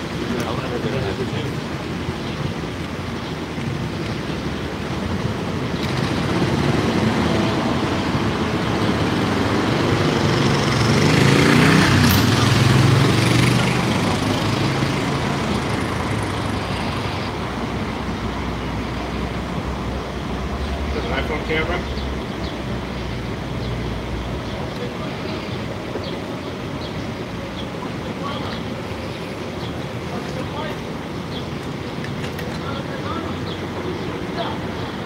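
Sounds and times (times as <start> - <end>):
road noise of street traffic: 0.0 - 35.0
motor vehicle passing close by: 5.8 - 17.4.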